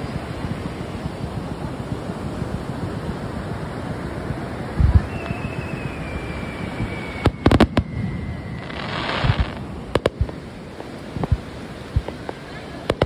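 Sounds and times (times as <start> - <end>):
fireworks bursting bangs: 0.0 - 13.0
firework whistle: 3.7 - 10.4.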